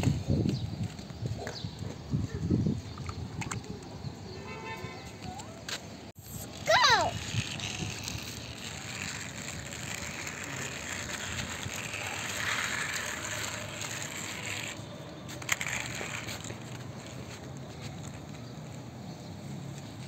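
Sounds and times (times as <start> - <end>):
toy car wheels scraping on concrete: 6.2 - 20.0.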